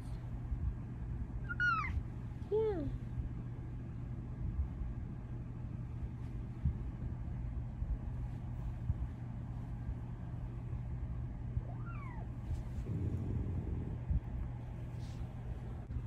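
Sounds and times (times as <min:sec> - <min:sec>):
low rumble: 0:03.0 - 0:16.0
cat meowing: 0:11.6 - 0:12.3.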